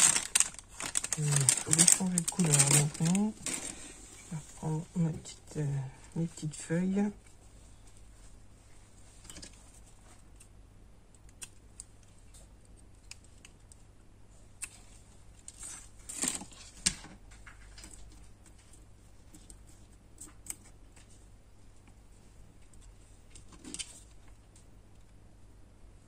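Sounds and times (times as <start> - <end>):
handling clicks and rustles: 0.0 - 3.8.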